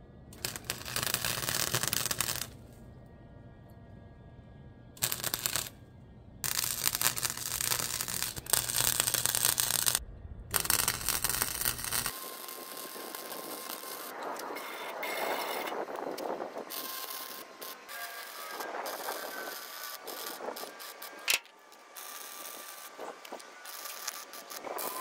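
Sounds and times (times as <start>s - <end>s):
low hum: 0.0s - 14.6s
crackling welding arc: 0.4s - 2.6s, 5.0s - 5.8s, 6.4s - 25.0s
steady rough noise: 6.4s - 14.4s.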